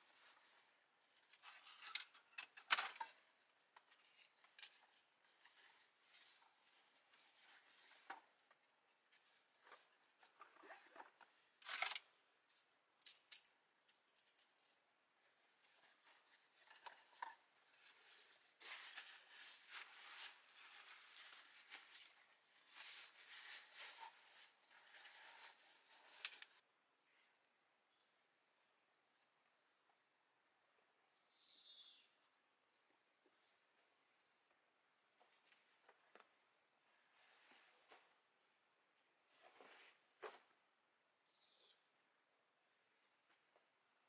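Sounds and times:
handling clicks and scrapes: 1.2s - 3.2s, 15.8s - 26.6s
scraping and rustling: 15.6s - 26.6s.

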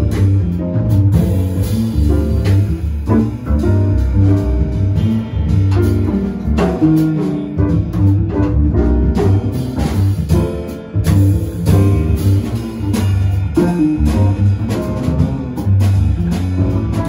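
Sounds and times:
deep bass: 0.0s - 17.0s
jazz piano: 0.0s - 17.0s.

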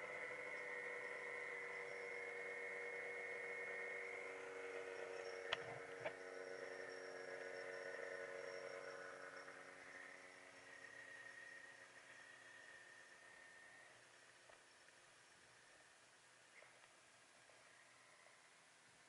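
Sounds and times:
snowmobile engine idling: 0.0s - 18.8s
sharp clicks: 5.4s - 6.2s.

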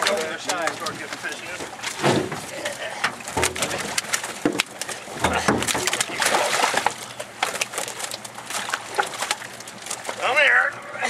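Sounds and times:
fish splashing in net: 3.2s - 10.3s.

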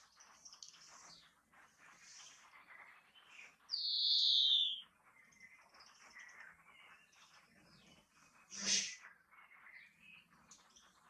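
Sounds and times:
bird twittering trills: 0.0s - 11.0s
bird buzzy wheeze: 8.5s - 9.0s.

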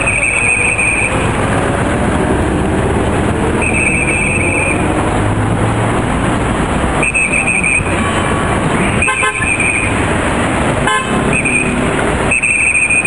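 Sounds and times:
shrill trilling whistle blasts: 0.0s - 1.2s, 3.6s - 4.8s, 7.0s - 7.9s, 9.0s - 10.0s, 11.3s - 13.0s
road traffic noise: 0.0s - 13.0s.

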